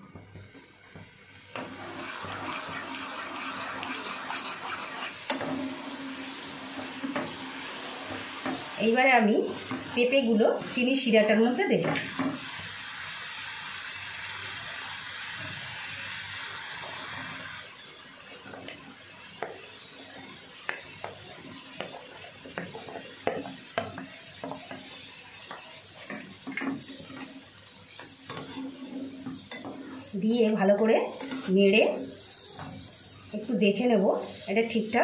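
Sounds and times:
syrup boiling in a pan: 0:00.0 - 0:34.5
wooden spatula scraping a pan: 0:01.6 - 0:08.8, 0:19.4 - 0:34.5.

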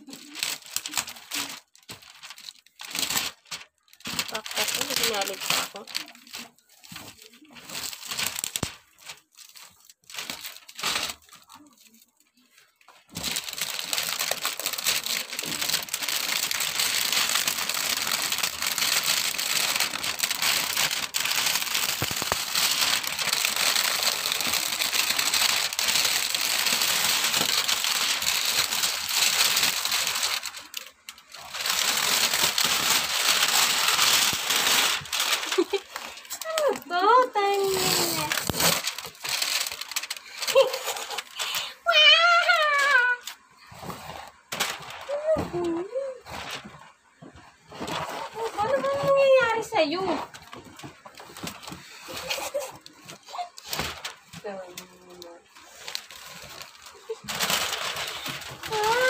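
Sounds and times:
foil wrap crinkling and tearing: 0:00.0 - 0:59.0.

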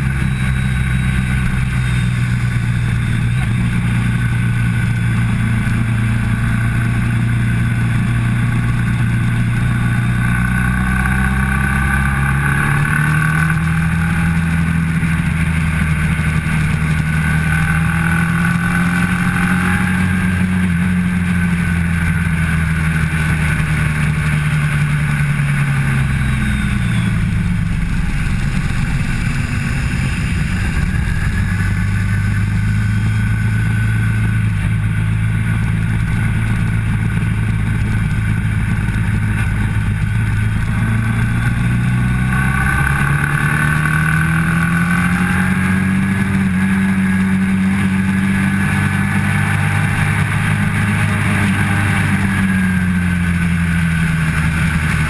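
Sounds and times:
motorcycle engine at speed: 0:00.0 - 0:55.0.

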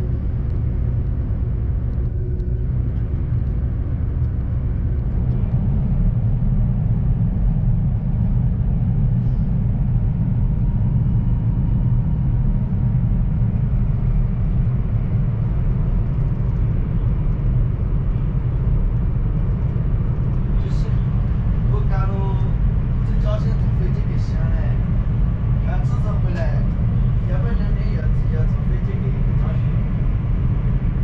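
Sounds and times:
train rumble inside cabin: 0:00.0 - 0:31.0.

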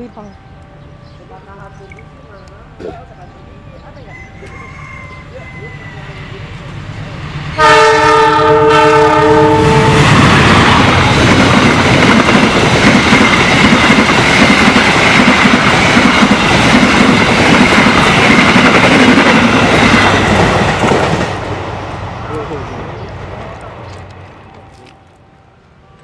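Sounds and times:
locomotive horn: 0:07.6 - 0:10.6
train wheels clickety-clack: 0:10.0 - 0:21.6.

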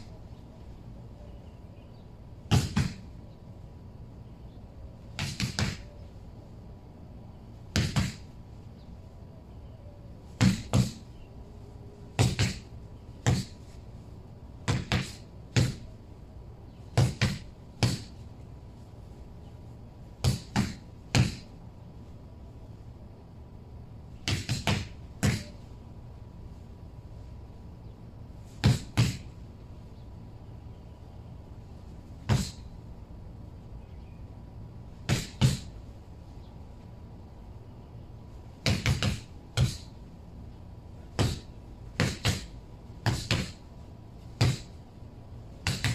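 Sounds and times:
boxing gloves punching rubber tyre: 0:02.5 - 0:03.1, 0:05.1 - 0:05.9, 0:07.7 - 0:08.3, 0:10.3 - 0:11.1, 0:12.2 - 0:13.6, 0:14.6 - 0:15.9, 0:16.9 - 0:18.2, 0:20.2 - 0:21.5, 0:24.2 - 0:25.6, 0:28.5 - 0:29.3, 0:32.2 - 0:32.7, 0:35.0 - 0:35.8, 0:38.6 - 0:39.9, 0:41.1 - 0:43.6, 0:44.4 - 0:44.8, 0:45.6 - 0:45.9.

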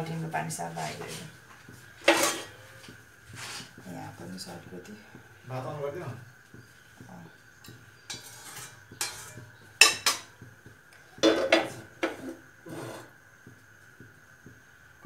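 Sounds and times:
metal spoon clinking against pan: 0:08.1 - 0:10.3.

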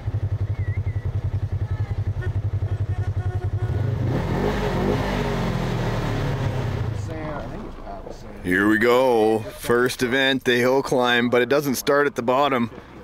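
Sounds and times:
truck engine idling and revving: 0:00.0 - 0:13.0.

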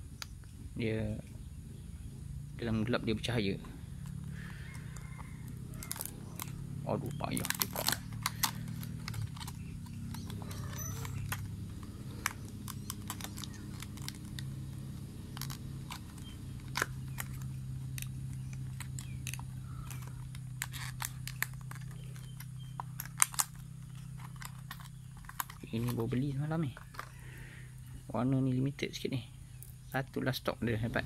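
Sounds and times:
steady low hum: 0:00.0 - 0:31.0
plastic packaging crackling: 0:04.0 - 0:27.3.

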